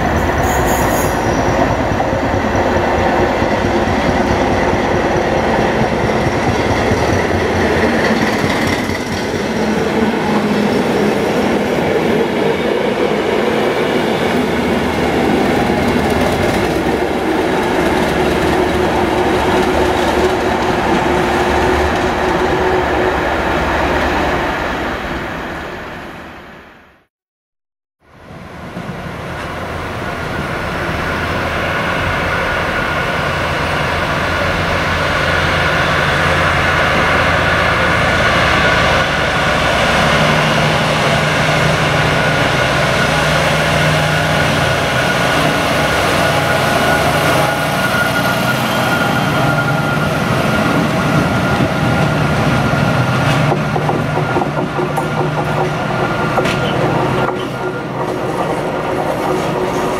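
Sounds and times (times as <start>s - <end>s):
diesel train engine drone: 28.2s - 59.9s
steady high-pitched tone: 41.4s - 52.2s.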